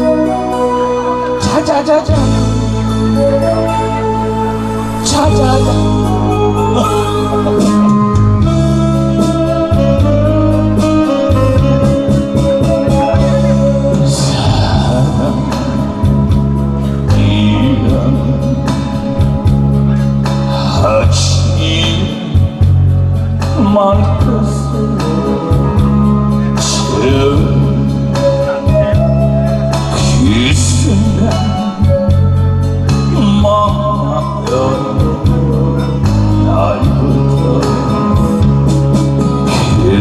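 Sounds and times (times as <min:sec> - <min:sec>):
bass: 0:00.0 - 0:40.0
guitar-like lead melody: 0:00.0 - 0:40.0
steady drum beat: 0:05.0 - 0:24.5.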